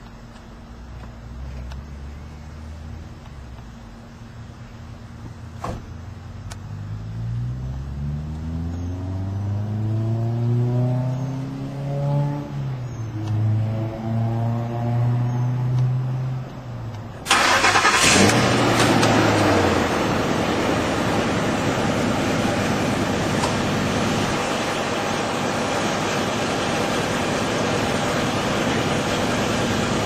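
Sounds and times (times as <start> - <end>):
engine starting with exhaust blast: 17.2 - 21.2
engine idling: 17.2 - 30.0
starter whine: 17.2 - 30.0.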